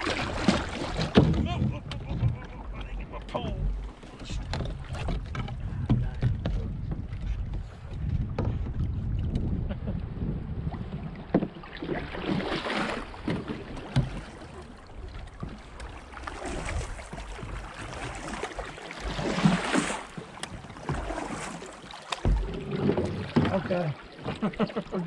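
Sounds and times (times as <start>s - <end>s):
paddles knocking against kayak hulls: 0.0s - 25.0s
paddles splashing in river water: 0.0s - 25.0s.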